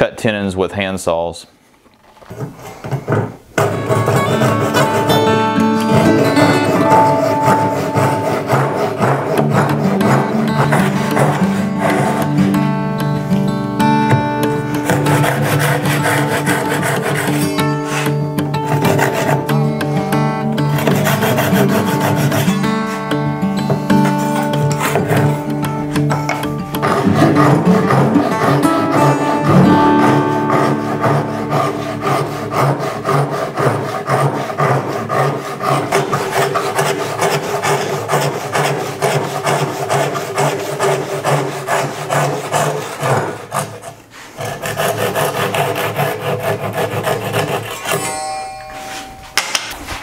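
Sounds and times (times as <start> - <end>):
hand saw rasping strokes: 2.3 - 12.7, 14.4 - 50.0
acoustic guitar music: 3.6 - 39.4, 46.1 - 50.0.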